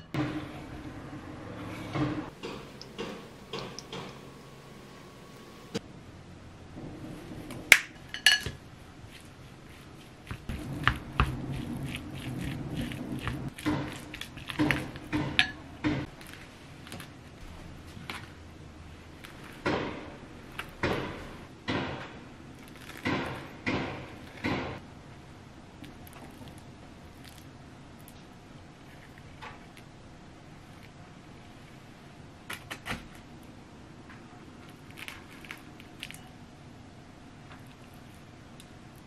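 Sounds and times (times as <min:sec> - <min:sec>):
spoon scraping and stirring in bowl: 0:08.1 - 0:17.1.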